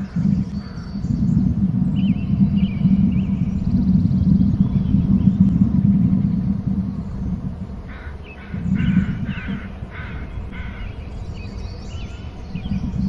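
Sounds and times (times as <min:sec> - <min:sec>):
low rumble: 0:00.0 - 0:13.0
crow cawing: 0:07.9 - 0:11.0.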